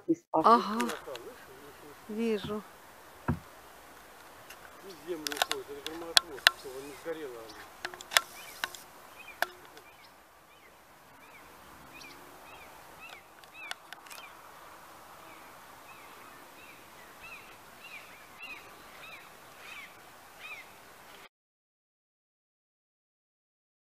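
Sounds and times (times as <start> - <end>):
faint outdoor hiss: 0.0 - 21.3
small birds chirping: 0.4 - 21.3
clicks: 5.1 - 6.8.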